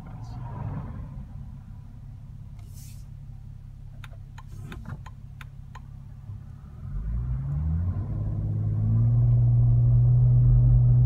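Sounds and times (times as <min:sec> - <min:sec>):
car engine revving: 0:06.1 - 0:11.0.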